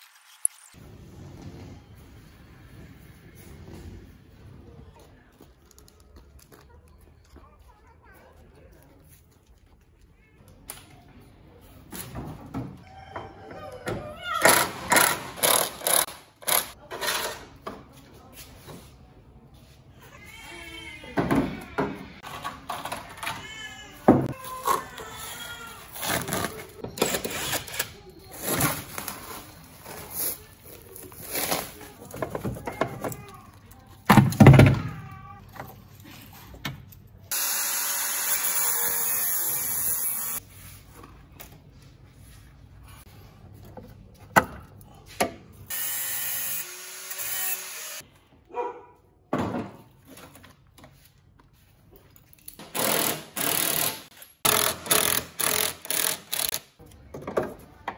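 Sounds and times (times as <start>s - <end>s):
angle grinder cutting metal: 37.3s - 40.4s, 45.7s - 48.0s.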